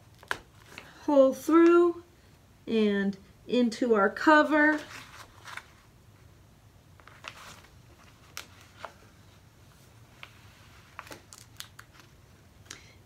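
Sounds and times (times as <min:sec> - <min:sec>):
paper pages folded: 0:04.7 - 0:05.9, 0:07.0 - 0:09.1, 0:09.8 - 0:12.3.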